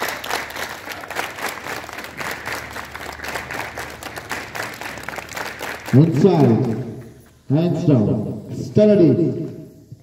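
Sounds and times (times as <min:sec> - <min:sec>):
children clapping: 0:00.0 - 0:07.3.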